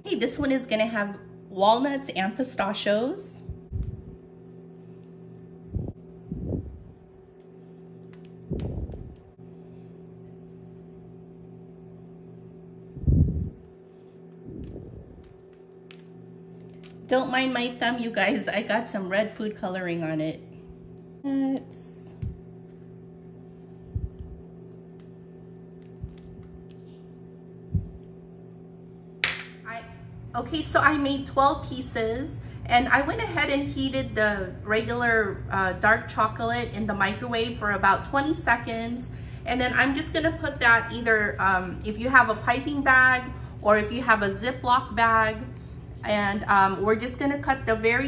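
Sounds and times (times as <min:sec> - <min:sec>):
steady low appliance hum: 0:00.0 - 0:48.0
soft low thumps: 0:03.4 - 0:04.2, 0:08.4 - 0:09.3, 0:12.9 - 0:13.6, 0:22.1 - 0:22.5, 0:23.8 - 0:24.5, 0:27.6 - 0:28.2.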